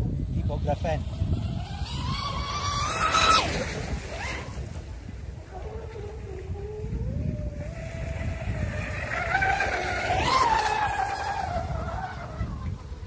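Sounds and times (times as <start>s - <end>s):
low steady rumble: 0.0s - 13.0s
rc boat motor and propeller whine: 0.0s - 13.0s.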